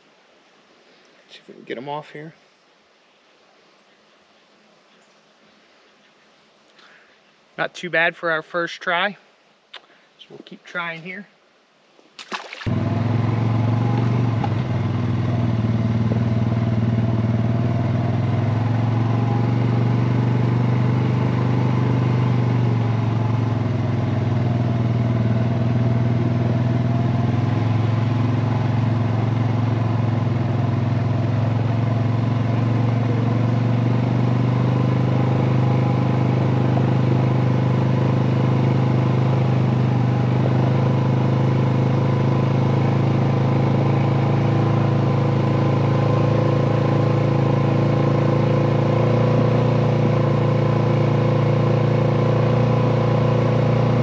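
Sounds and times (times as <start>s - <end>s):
single-cylinder engine running: 12.7s - 54.0s.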